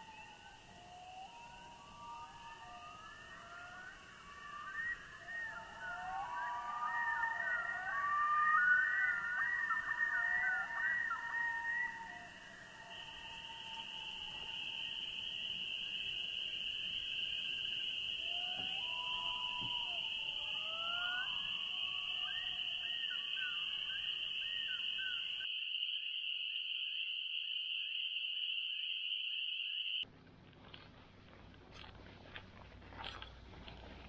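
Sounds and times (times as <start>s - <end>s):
birds whistling calls: 0.1s - 25.5s
high-pitched animal chorus: 2.3s - 15.6s.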